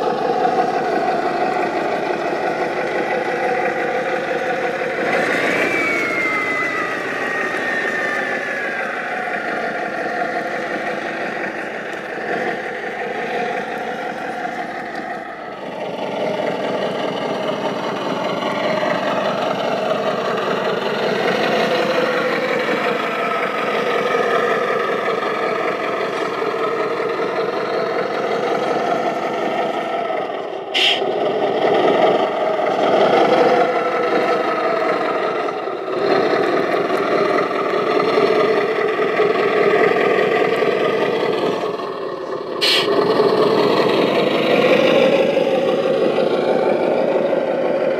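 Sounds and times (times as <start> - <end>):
model truck engine revving: 0.0 - 47.9
short sharp high sound: 30.8 - 31.0, 42.6 - 42.9.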